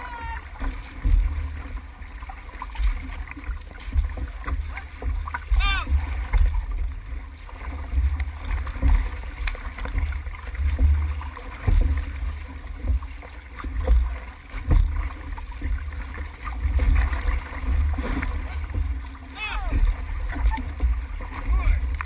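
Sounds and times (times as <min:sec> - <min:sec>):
water rushing along canoe hull: 0:00.0 - 0:22.0.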